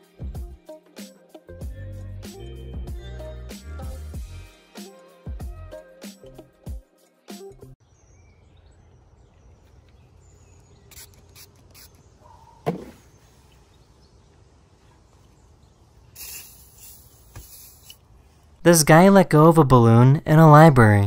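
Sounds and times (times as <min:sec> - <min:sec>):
pump-spray bottle spritzes: 0:10.8 - 0:12.0, 0:16.1 - 0:18.0
aerosol can hissing: 0:10.9 - 0:12.0, 0:16.2 - 0:18.0.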